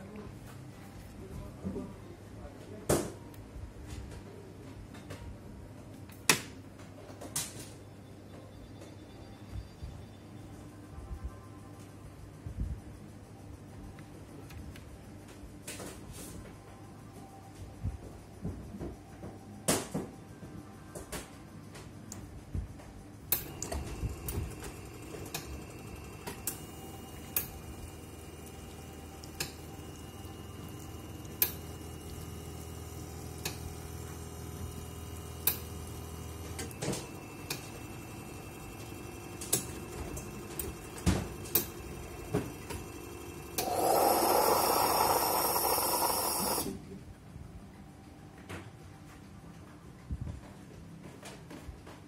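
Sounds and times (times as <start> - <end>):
coffee machine humming: 23.2 - 46.8
machine clicks and ticks: 23.3 - 46.7.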